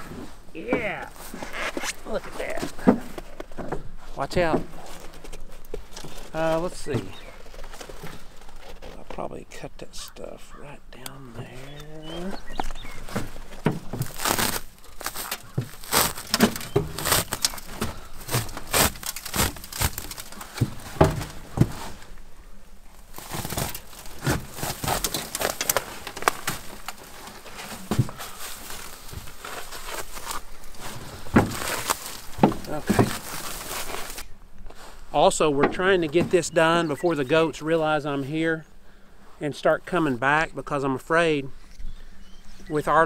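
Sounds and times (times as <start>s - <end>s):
plastic net wrap crinkling and tearing: 13.0s - 21.0s, 22.9s - 34.3s.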